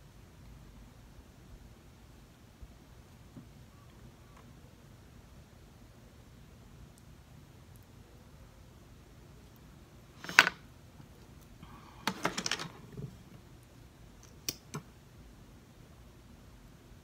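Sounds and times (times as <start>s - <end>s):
makeup items clicking and clattering: 12.0s - 13.2s.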